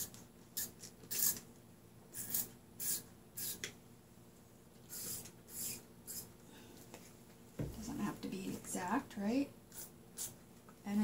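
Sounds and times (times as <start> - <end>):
spray bottle hissing squirts: 0.6 - 1.4, 2.2 - 3.6, 4.9 - 6.3.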